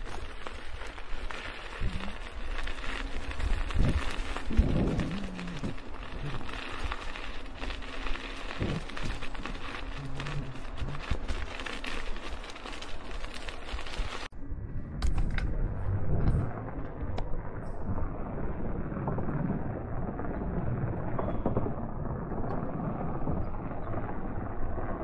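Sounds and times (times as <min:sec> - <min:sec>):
rain-like hiss: 0:00.0 - 0:14.3
crackles: 0:00.0 - 0:25.0
low rumble: 0:01.6 - 0:11.6, 0:13.4 - 0:25.0.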